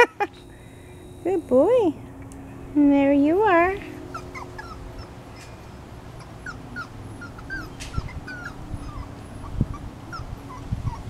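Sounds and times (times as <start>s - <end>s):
puppies whimpering: 3.8s - 11.0s.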